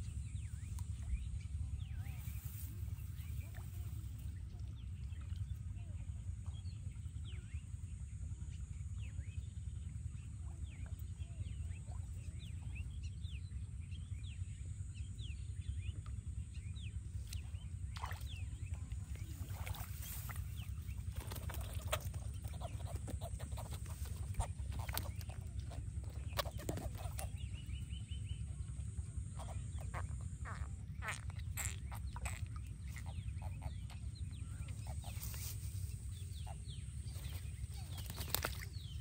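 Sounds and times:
steady low rumble: 0:00.0 - 0:39.0
birds chirping and clucking: 0:17.4 - 0:28.2, 0:29.3 - 0:39.0
water splashes: 0:17.8 - 0:27.4.

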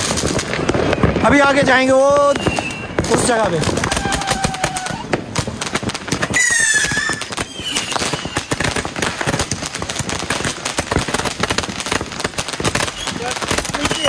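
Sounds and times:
fireworks crackling and banging: 0:00.0 - 0:14.0
handheld firework tubes firing: 0:00.0 - 0:14.0
high falling firework whistle: 0:02.2 - 0:05.3, 0:06.2 - 0:08.8, 0:12.8 - 0:14.0.

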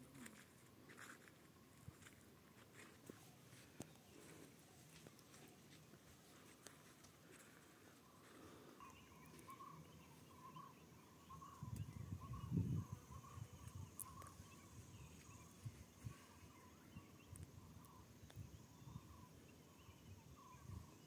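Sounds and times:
small chirping call: 0:08.1 - 0:21.0.

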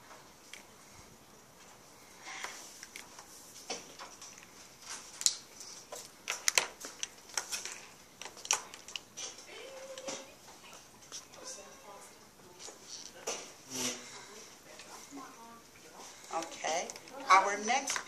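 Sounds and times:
pens tapping and scratching paper: 0:02.4 - 0:11.4, 0:16.0 - 0:18.0.

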